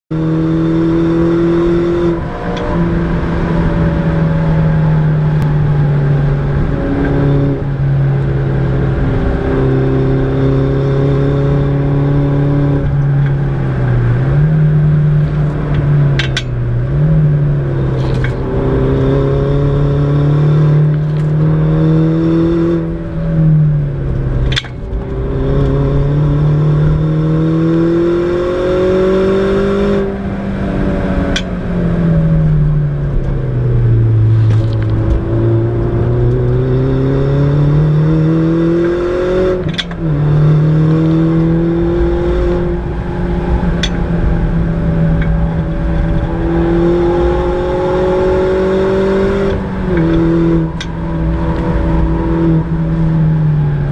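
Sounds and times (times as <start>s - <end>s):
car engine pulling hard: 0.1s - 53.9s.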